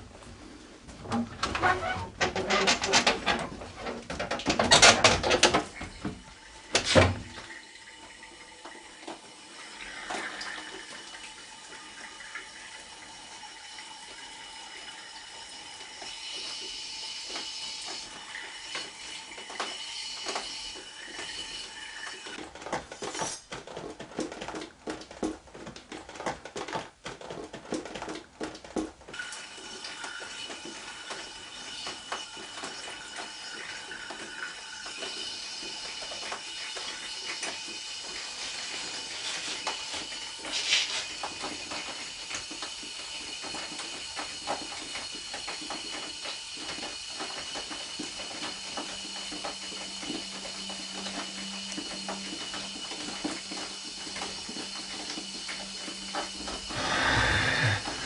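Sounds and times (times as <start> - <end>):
water running into plastic bucket: 0.0 - 58.0
clicks and clatter of handling: 1.0 - 5.9.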